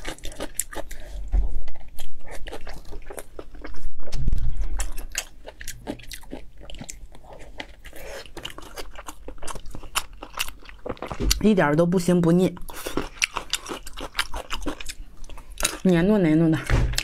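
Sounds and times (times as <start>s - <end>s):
close-miked wet chewing: 0.0s - 3.9s, 4.6s - 11.6s, 12.3s - 16.0s.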